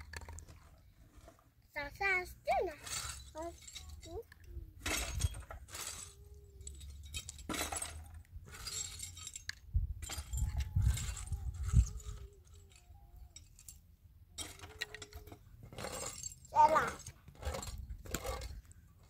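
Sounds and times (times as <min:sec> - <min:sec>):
stones clinking and scraping: 0:00.0 - 0:01.6, 0:14.4 - 0:19.0.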